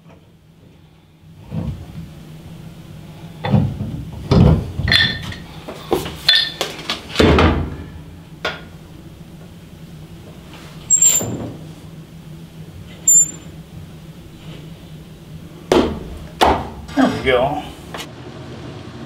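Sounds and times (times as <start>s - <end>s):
wrench clinking on metal nut: 13.1s - 13.5s.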